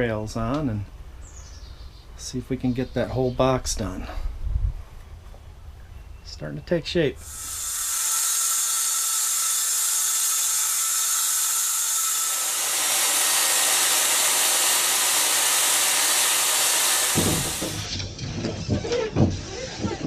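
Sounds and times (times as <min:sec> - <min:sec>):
electric saw cutting plastic: 0:07.2 - 0:17.9.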